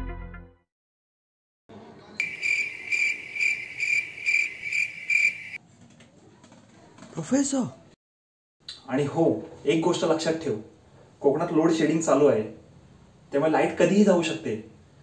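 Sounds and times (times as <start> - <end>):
cricket chirping: 1.7 - 5.6.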